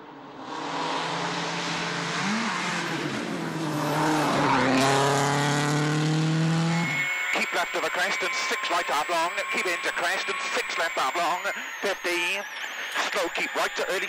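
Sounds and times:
rally car passing at full throttle: 0.0s - 10.6s.

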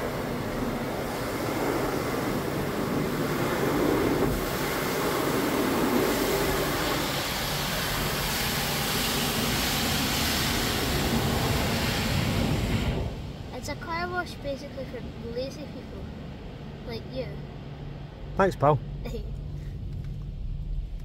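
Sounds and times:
car wash brushes scrubbing: 0.0s - 12.5s.

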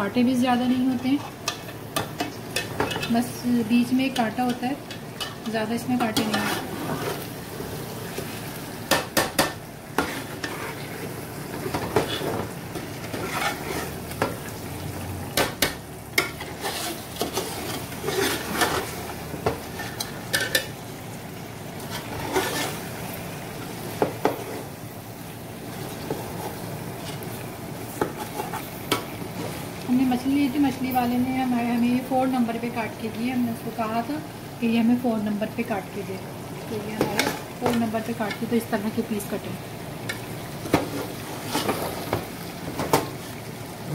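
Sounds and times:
sizzling in oil: 0.0s - 43.9s
metal spoon scraping a pot: 6.0s - 7.2s, 10.0s - 11.1s, 13.0s - 14.0s, 16.2s - 19.0s, 21.9s - 22.8s.

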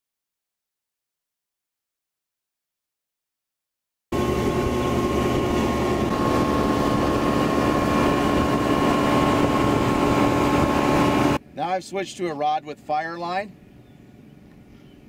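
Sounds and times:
outboard motor running: 4.1s - 11.4s
wind and water rushing: 4.1s - 12.0s.

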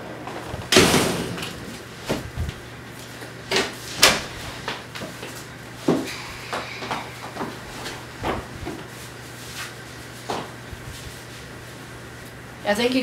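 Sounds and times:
door shutting with a thud: 0.5s - 2.4s.

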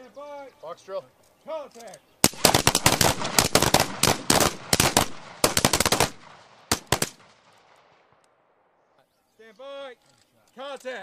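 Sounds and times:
rifle gunshots volley: 2.2s - 8.2s.

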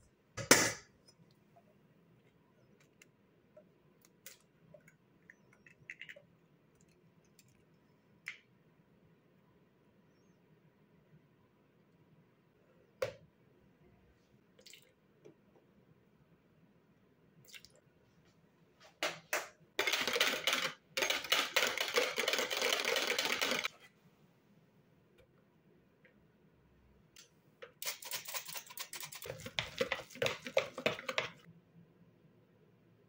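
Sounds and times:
rapid clicking and rattling: 19.8s - 23.7s.

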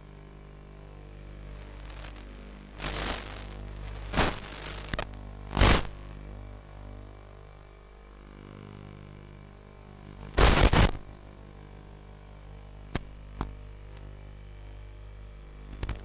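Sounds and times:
steady electrical buzz: 0.0s - 16.0s
bursts of static: 1.1s - 6.9s, 10.1s - 11.2s.

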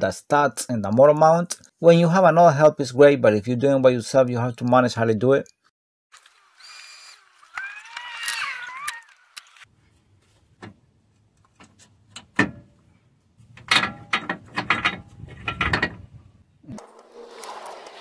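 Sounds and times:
metallic clicks and creaks: 10.6s - 12.8s, 13.5s - 16.1s.

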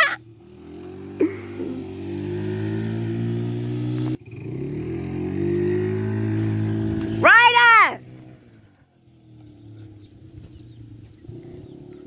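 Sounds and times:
quad bike engine running: 0.0s - 12.0s.

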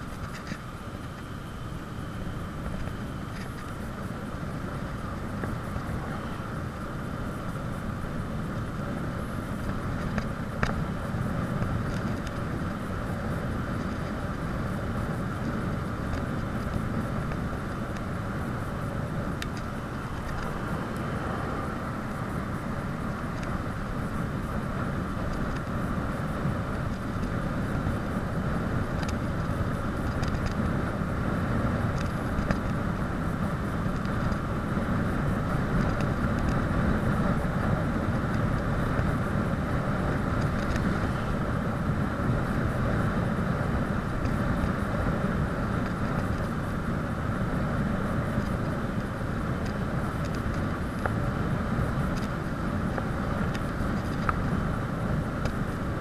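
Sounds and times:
bicycle tyre noise on asphalt: 0.0s - 56.0s
wind rumbling on microphone: 0.0s - 56.0s.

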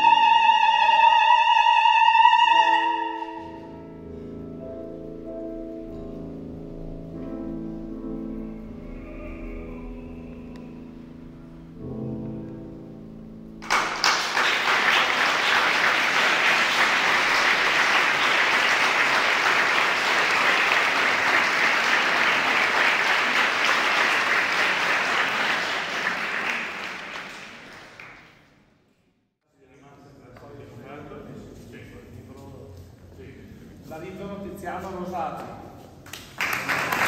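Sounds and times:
classical music: 0.0s - 28.8s
audience applause: 13.6s - 28.5s, 36.2s - 37.0s.

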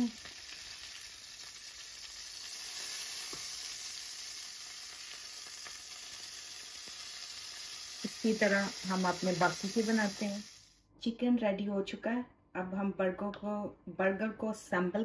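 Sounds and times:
chicken sizzling in oil: 0.0s - 10.8s.

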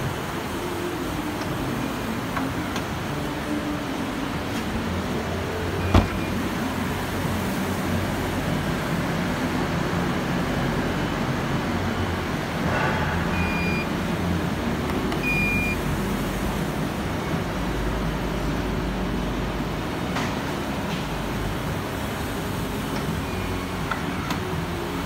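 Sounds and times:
tailgate shutting clicks: 5.8s - 6.3s.

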